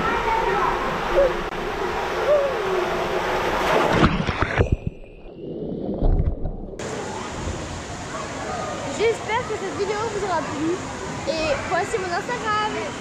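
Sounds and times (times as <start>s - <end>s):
water rushing down tube slide: 0.0s - 12.8s
heavy splash into pool: 1.8s - 4.8s.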